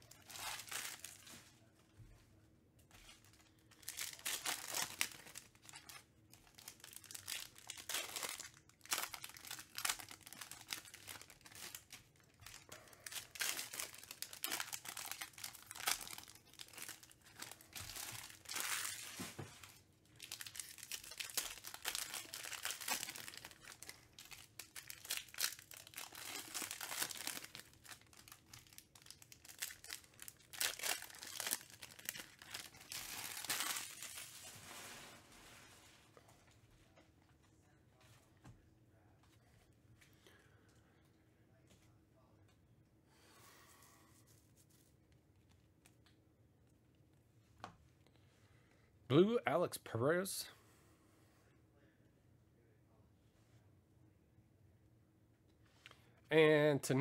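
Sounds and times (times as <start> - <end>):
foil wrappers crinkling and tearing: 0.0 - 1.5, 3.0 - 35.7.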